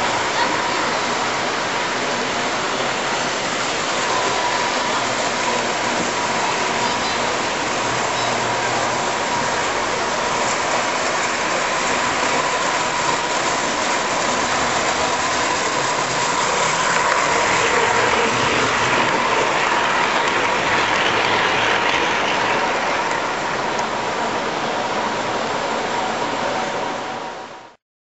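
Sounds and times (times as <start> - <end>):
toy train wheels rumbling and clicking: 0.0 - 24.0.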